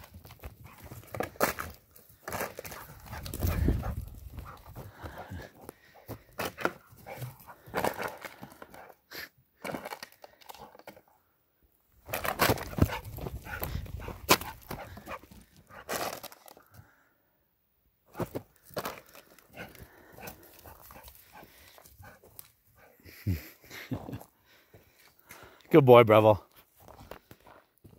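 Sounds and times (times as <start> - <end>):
dog scuffling on ground: 0.0 - 5.4, 6.1 - 8.4, 12.1 - 16.3
dog breathing and snuffling: 2.2 - 9.0, 12.6 - 15.9, 19.5 - 23.7.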